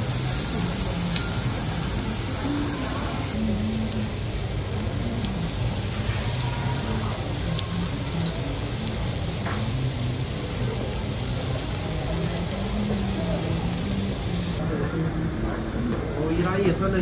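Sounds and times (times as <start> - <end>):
food sizzling on a griddle: 0.0 - 17.0.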